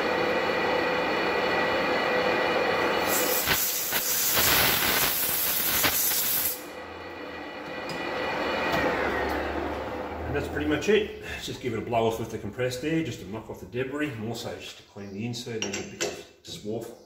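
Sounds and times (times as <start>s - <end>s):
lathe gear whine: 0.0s - 3.2s, 6.6s - 11.2s
air blow gun hissing: 3.0s - 6.7s.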